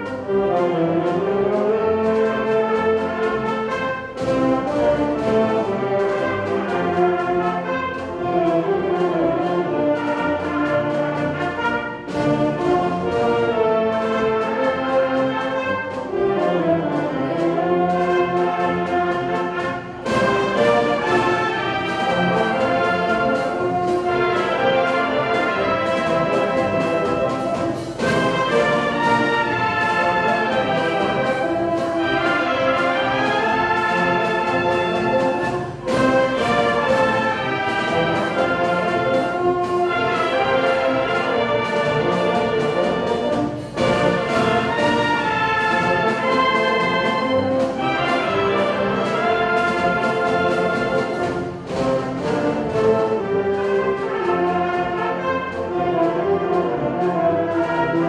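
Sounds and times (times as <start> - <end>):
brass band playing march: 0.0 - 58.0
drum beat: 18.6 - 53.0.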